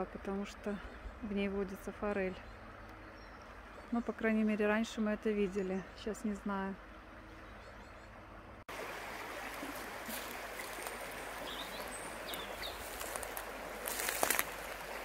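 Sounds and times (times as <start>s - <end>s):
river running over stones: 8.7s - 15.0s.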